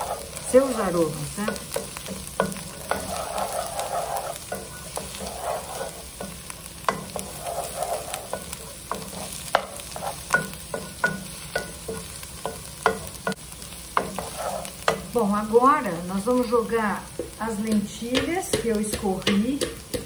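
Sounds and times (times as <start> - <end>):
spatula tapping pan: 0.0 - 15.7, 17.0 - 20.0
food sizzling in oil: 0.0 - 20.0
wooden spatula scraping pan: 0.0 - 20.0.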